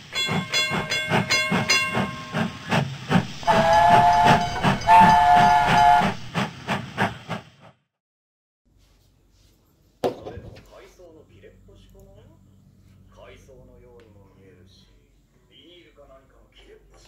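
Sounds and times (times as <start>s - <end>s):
two-note steam whistle: 0.0s - 6.5s
steam train chuffing: 0.0s - 7.8s
high ringing tone: 3.4s - 6.2s.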